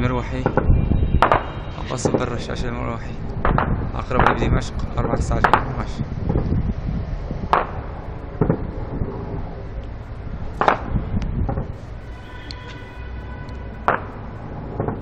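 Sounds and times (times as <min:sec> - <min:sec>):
helicopter rumble: 0:00.0 - 0:13.0, 0:13.6 - 0:15.0
gunshots: 0:00.4 - 0:02.4, 0:03.3 - 0:04.7, 0:07.5 - 0:09.0, 0:10.6 - 0:11.8, 0:13.8 - 0:15.0.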